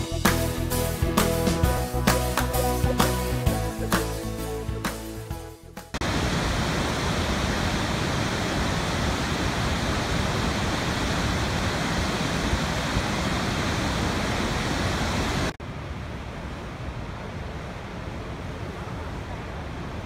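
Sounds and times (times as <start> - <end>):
waterfall rushing: 6.0 - 15.6.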